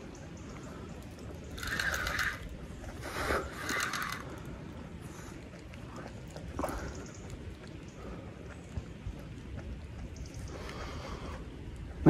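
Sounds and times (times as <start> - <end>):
fishing reel drag clicking: 1.6 - 2.5, 3.2 - 4.3.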